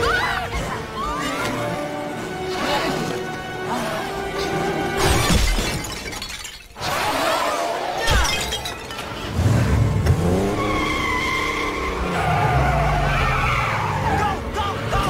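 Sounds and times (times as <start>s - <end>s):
car engine revving: 9.3s - 14.9s
tyres squealing: 10.4s - 15.0s.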